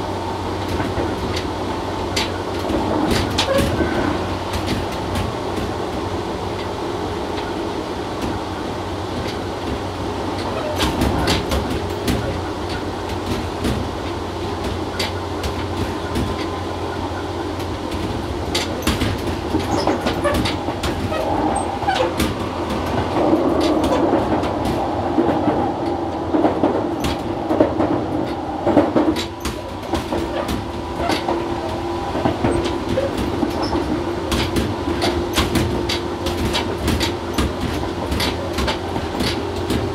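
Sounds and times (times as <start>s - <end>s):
wheels clicking over rail joints: 9.2s - 39.9s
traction motor hum: 10.0s - 35.8s.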